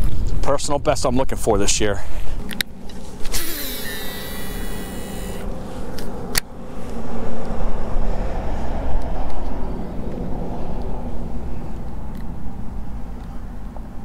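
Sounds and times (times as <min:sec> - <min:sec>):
fishing reel spool whirring: 0:02.8 - 0:06.4
sharp reel clicks: 0:03.3 - 0:05.4.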